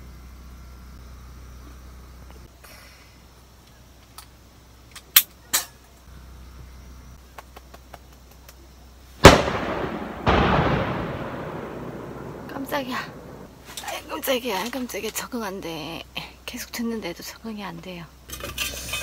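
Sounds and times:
loud echoing outdoor bang: 9.2s - 13.6s.

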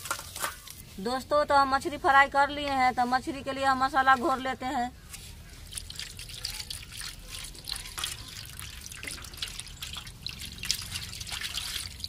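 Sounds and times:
hand squelching wet paste: 5.1s - 12.0s
water trickling onto steel plate: 5.5s - 12.0s.

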